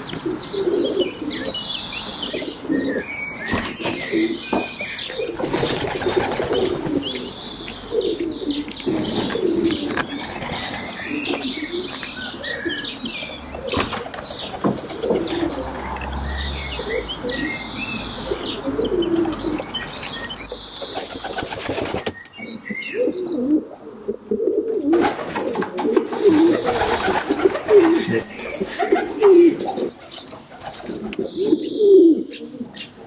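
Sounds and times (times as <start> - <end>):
high chirping calls: 0.0 - 25.4, 26.1 - 33.0
pigeons cooing: 0.0 - 33.0
wing flaps: 25.0 - 29.4.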